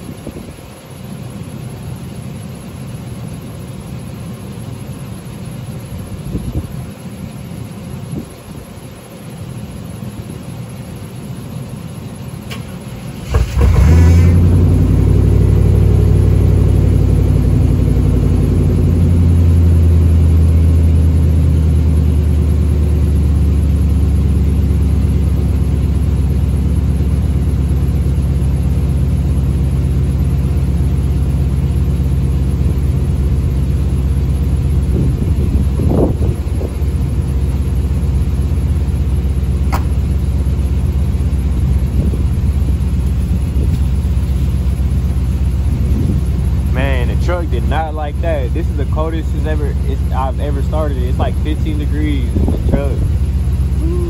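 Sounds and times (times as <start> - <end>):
truck engine idling: 0.0 - 54.0
engine cranking: 12.5 - 14.0
person talking: 46.8 - 53.1.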